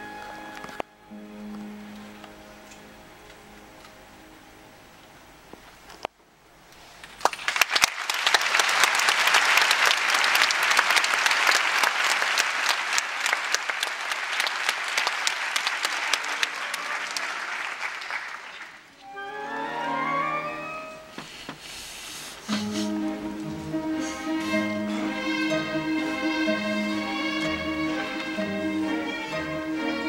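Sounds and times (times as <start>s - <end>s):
orchestra playing: 0.0s - 4.8s, 15.8s - 17.8s, 19.0s - 21.2s, 22.4s - 30.0s
audience applauding: 7.0s - 19.0s.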